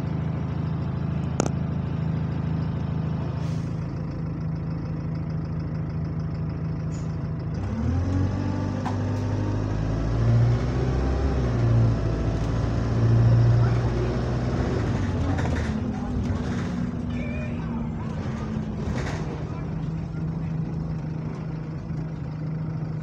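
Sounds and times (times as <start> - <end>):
bus engine idling and revving: 0.0 - 23.0.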